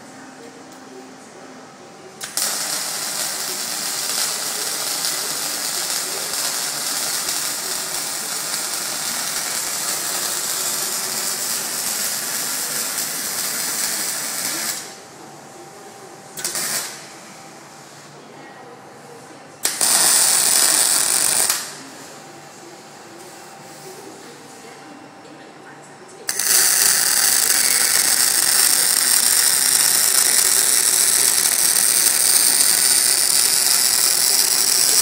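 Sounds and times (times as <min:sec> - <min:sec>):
electric arc welding: 0:02.2 - 0:15.0, 0:16.4 - 0:17.1, 0:19.6 - 0:21.8, 0:26.3 - 0:35.0.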